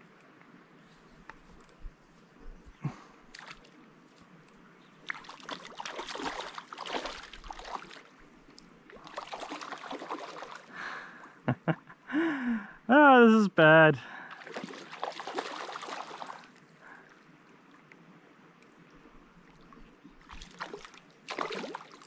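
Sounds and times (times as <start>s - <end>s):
fish splashing in water: 5.0s - 8.1s, 8.9s - 10.7s, 14.3s - 16.6s, 20.2s - 22.0s.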